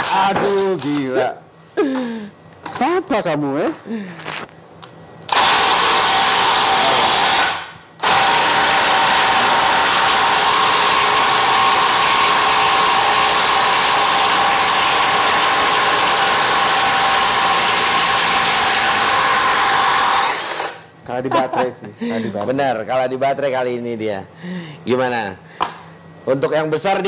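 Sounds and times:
impact driver hammering: 5.3 - 20.8.

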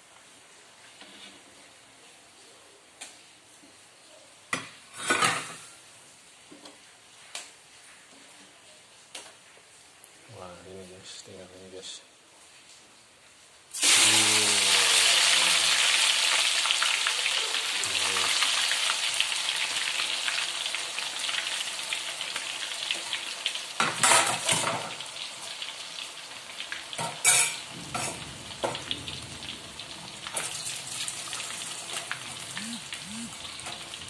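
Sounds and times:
deep-frying sizzle in oil: 13.7 - 34.0.

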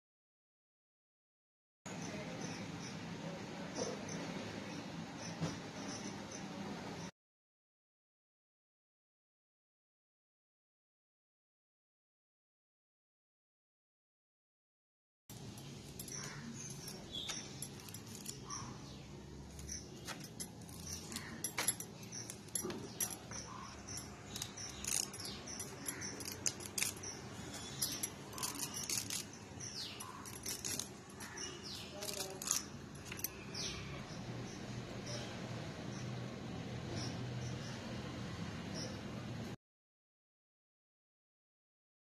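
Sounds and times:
crisp clicks and rustles: 15.3 - 18.6, 19.5 - 33.8
high bird chirps: 15.6 - 35.3
leaves being stripped by hand: 28.3 - 32.7.

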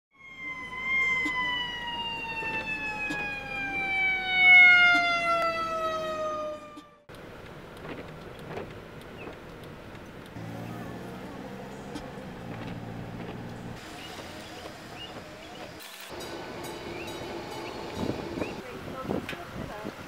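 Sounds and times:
fire engine siren winding down: 0.1 - 7.1.

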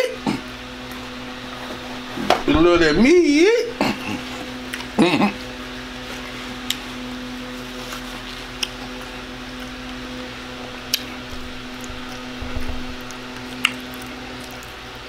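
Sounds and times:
steady hum: 0.0 - 15.0
chewing: 7.6 - 10.0, 10.8 - 12.3, 13.0 - 14.9.

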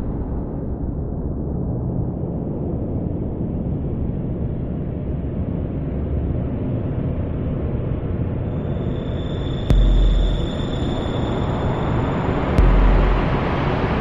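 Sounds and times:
dense low rumbling noise: 9.7 - 14.0.

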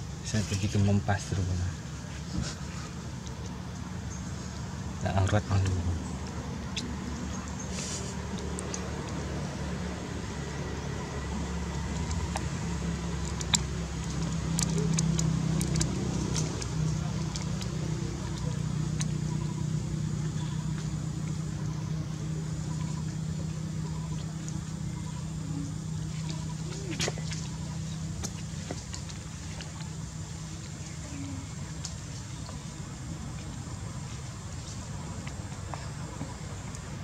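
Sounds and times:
low mechanical hum: 0.0 - 37.0.

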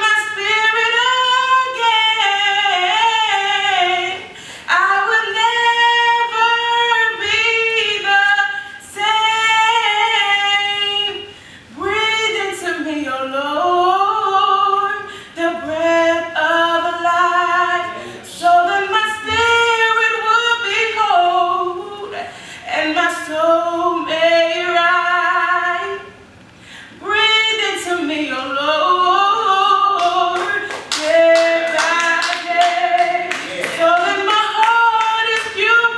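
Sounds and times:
woman singing gospel: 0.0 - 26.2, 26.8 - 35.9.

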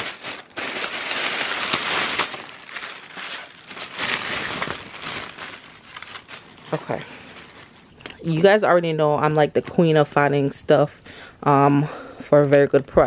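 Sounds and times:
plastic bag rustling: 0.0 - 8.6.

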